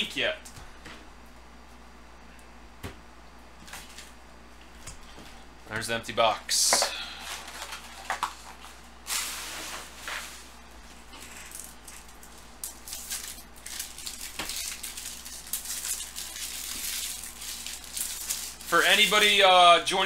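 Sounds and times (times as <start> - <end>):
foil wrappers crinkling: 6.7 - 19.6.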